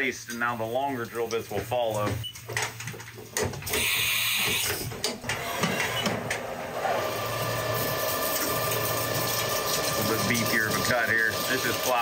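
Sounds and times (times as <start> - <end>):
tool changer hissing and clunks: 3.7 - 12.0
coolant spraying: 6.8 - 12.0.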